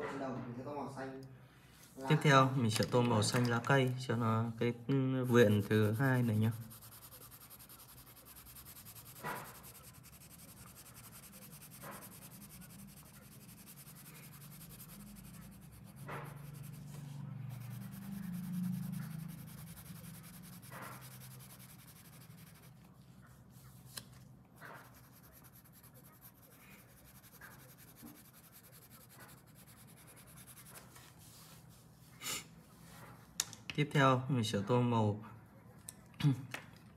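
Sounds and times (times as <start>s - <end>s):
pencil scratching on paper: 5.2s - 23.8s, 24.6s - 31.7s.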